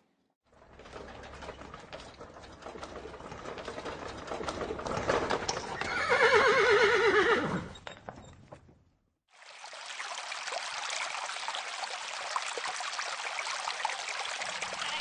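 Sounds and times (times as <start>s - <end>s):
horse hooves clip-clopping: 0.6s - 6.8s
horse whinnying: 5.6s - 7.9s.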